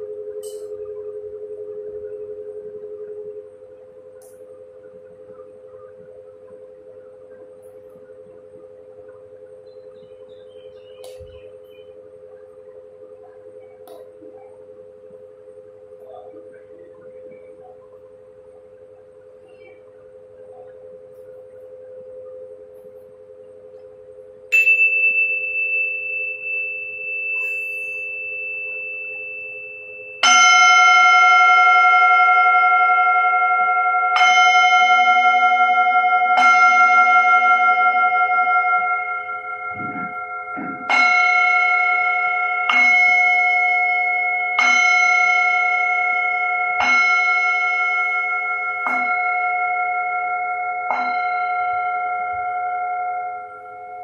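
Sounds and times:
low steady ringing tone: 0.0 - 54.0
small singing bowl ringing: 17.0 - 54.0
large singing bowl struck: 24.5 - 54.0.

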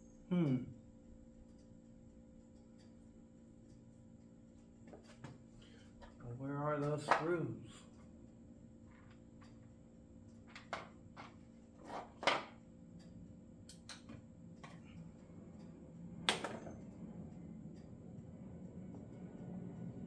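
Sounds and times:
clicks and knocks of tools: 4.6 - 6.2, 10.3 - 15.7.

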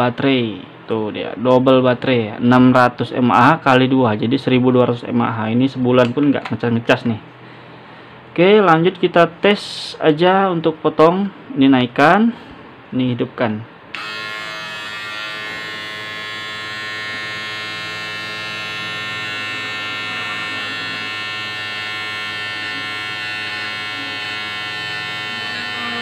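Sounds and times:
electric shaver motor buzzing: 13.9 - 26.0.

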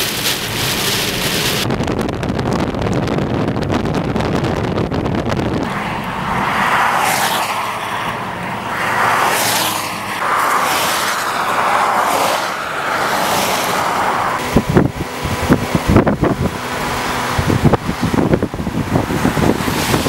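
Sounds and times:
highway traffic tyre hiss: 5.6 - 20.0.

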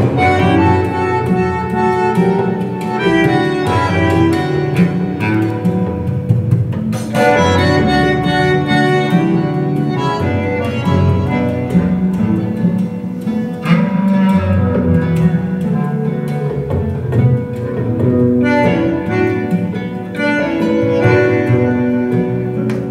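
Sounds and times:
vinyl record music over loudspeakers: 0.0 - 22.9.

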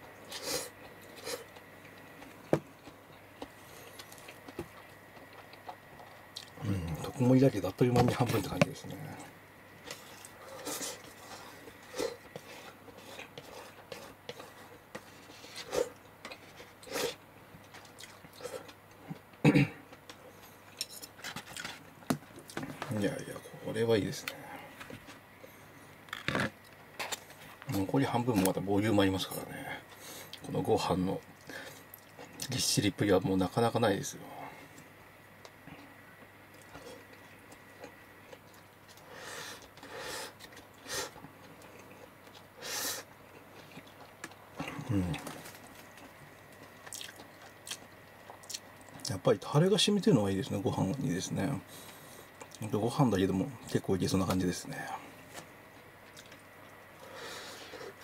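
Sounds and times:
faint eating clicks: 0.2 - 7.1, 43.2 - 49.2, 51.8 - 52.8, 55.8 - 57.0
person eating mouth sounds: 43.4 - 45.6.

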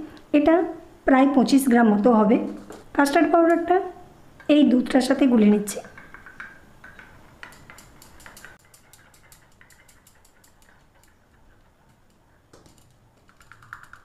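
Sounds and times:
spoon ticking against wooden bowl: 5.9 - 14.0.

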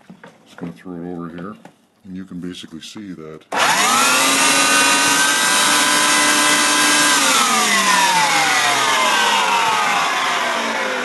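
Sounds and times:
carpet cleaner motor running: 3.5 - 11.0.

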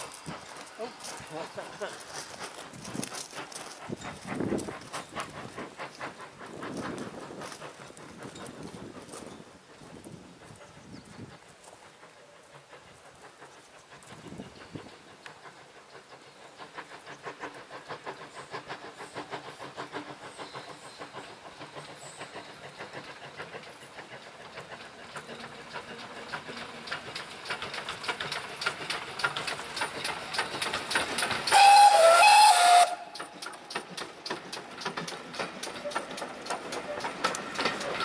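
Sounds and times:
steam locomotive exhaust beats: 0.0 - 38.0
steam whistle blast: 31.5 - 33.2.

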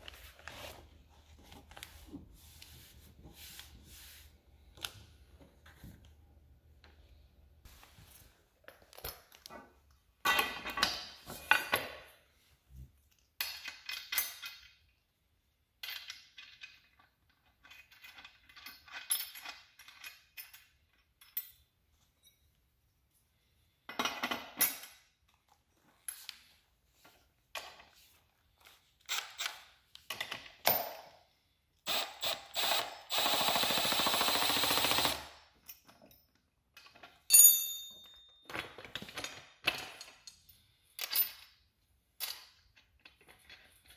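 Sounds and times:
cordless impact driver: 31.9 - 35.3.

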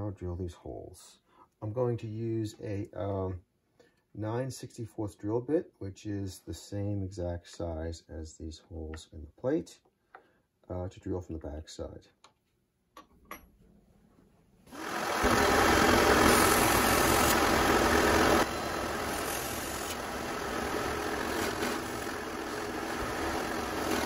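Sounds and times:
drill press running: 14.7 - 24.0.

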